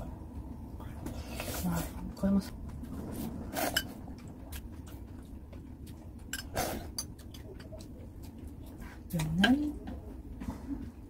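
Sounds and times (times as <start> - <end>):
chewing: 2.7 - 11.0.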